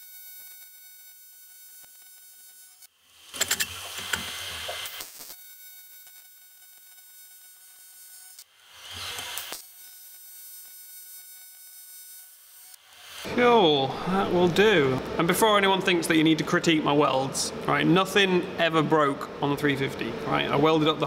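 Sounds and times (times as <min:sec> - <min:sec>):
welding arc buzzing and crackling: 0:00.0 - 0:13.4
steady high whine: 0:13.2 - 0:21.0.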